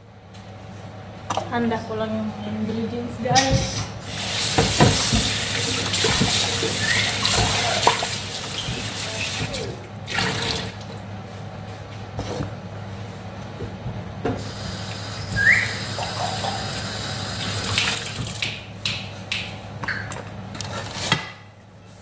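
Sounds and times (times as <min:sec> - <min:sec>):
tap running into sink: 0:04.5 - 0:09.6.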